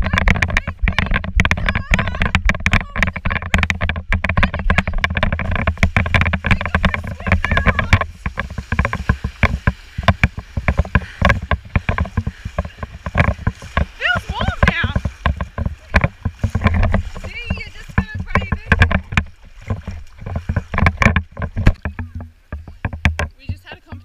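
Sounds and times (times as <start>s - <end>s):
water splashing from wading legs: 0.0s - 24.0s
wind rumbling on microphone: 0.0s - 24.0s
running footsteps on sand: 5.4s - 18.6s.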